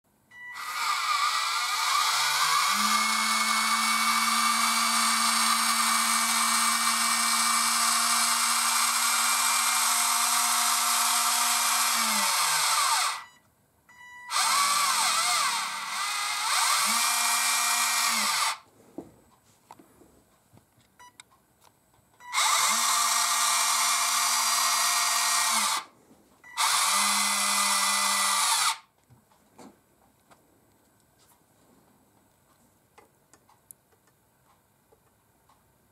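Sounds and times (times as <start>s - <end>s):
electric lift motor whining: 0.4s - 13.3s, 14.2s - 18.6s, 22.3s - 25.9s, 26.6s - 28.8s.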